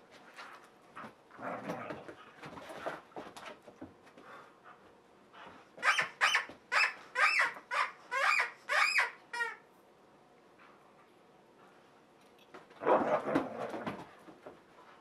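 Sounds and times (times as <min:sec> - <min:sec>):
dog toy squeaking: 0:05.8 - 0:09.6.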